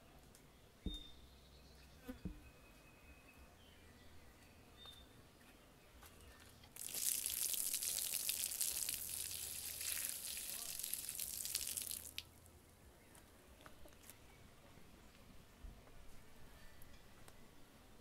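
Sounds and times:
soft thumps: 0.8 - 1.2
water pouring onto ground: 6.8 - 12.4.

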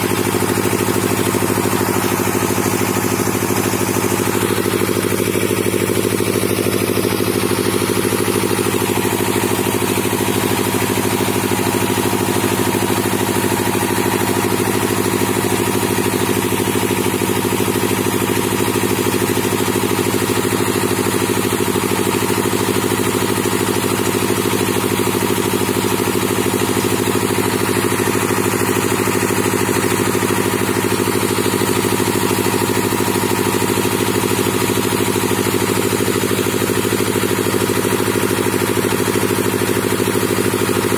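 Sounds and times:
drilling rig engine running: 0.0 - 19.9.

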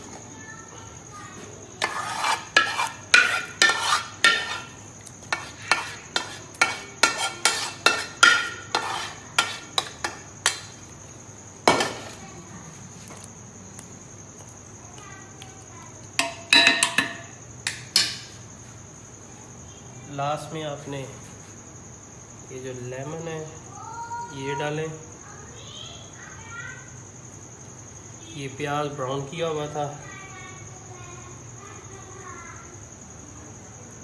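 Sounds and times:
metal spoon scraping a pot: 1.8 - 10.7.

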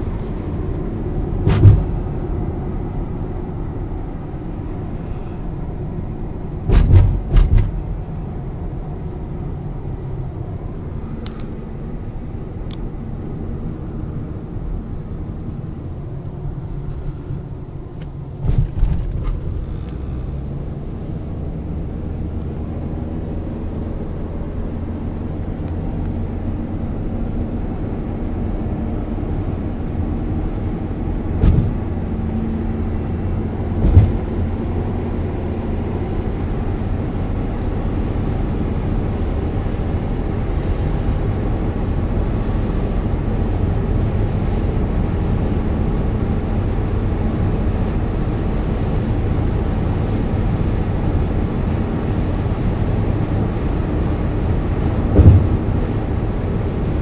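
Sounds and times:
road and engine rumble in car: 0.0 - 57.0
short thumps: 1.3 - 2.1, 6.7 - 7.9, 18.4 - 19.5, 31.4 - 31.9, 33.8 - 34.4, 55.1 - 55.7.

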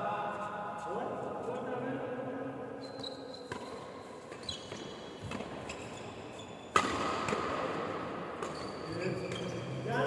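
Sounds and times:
shoe squeaks: 2.8 - 6.8, 8.4 - 9.8
racket striking shuttlecock: 3.5 - 5.7, 6.7 - 8.7.

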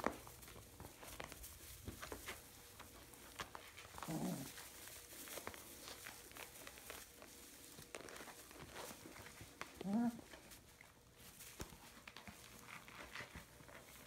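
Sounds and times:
paws rustling in straw: 0.0 - 14.0.

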